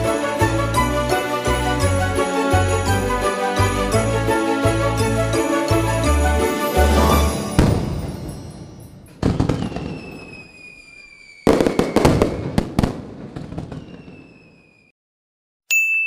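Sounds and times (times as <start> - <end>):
fireworks crackling bursts: 6.9 - 14.9
high whistle sliding down: 9.5 - 12.3, 13.8 - 14.9.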